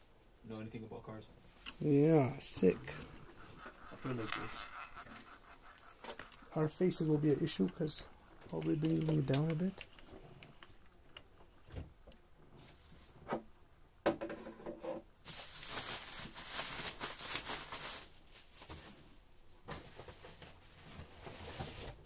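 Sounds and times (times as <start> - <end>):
packaging rustling and tearing: 2.6 - 10.6, 15.2 - 18.7
small clicks and knocks: 3.5 - 6.6, 8.4 - 12.2.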